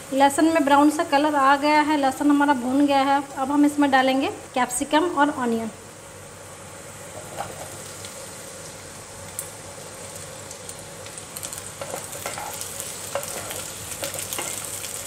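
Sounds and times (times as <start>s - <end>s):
vegetables sizzling in hot oil: 0.0s - 15.0s
spatula knocking and scraping pan: 11.8s - 14.6s.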